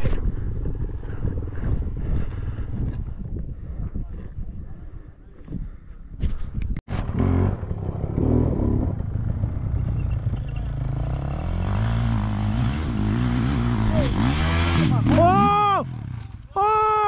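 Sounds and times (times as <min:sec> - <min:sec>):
dirt bike engine running: 0:06.9 - 0:16.5.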